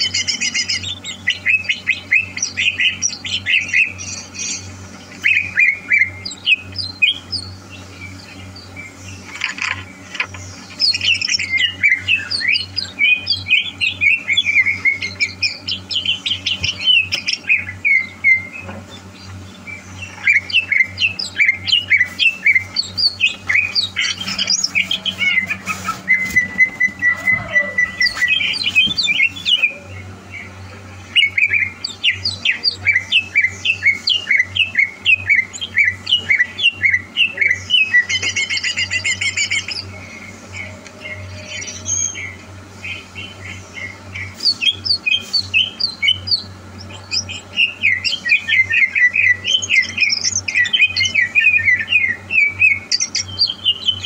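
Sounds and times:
bird singing chirps and whistles: 0.0 - 9.3, 10.7 - 40.0, 40.6 - 54.0.

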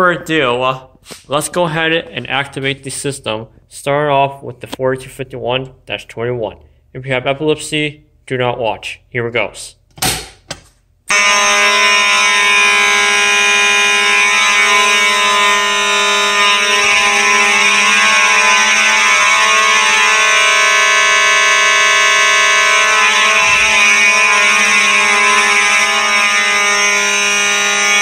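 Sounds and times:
fire alarm horns sounding: 11.1 - 28.0.

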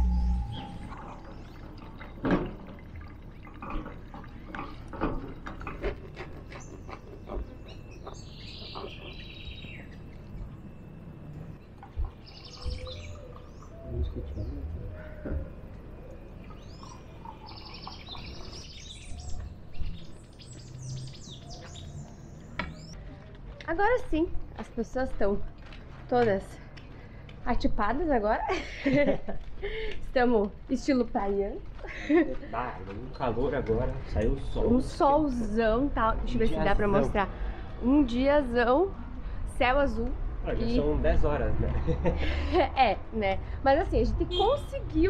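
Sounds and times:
birds chirping: 0.0 - 2.2, 4.3 - 23.1.

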